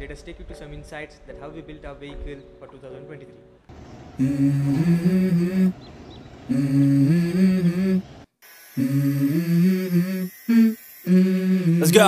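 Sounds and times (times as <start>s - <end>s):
low hummed vocal phrase: 4.2s - 5.8s, 6.5s - 8.1s, 8.8s - 12.0s.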